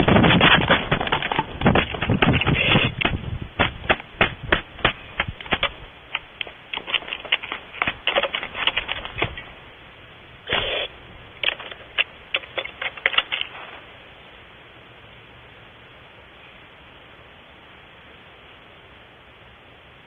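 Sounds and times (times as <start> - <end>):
talons tapping on wooden box: 0.0 - 9.5.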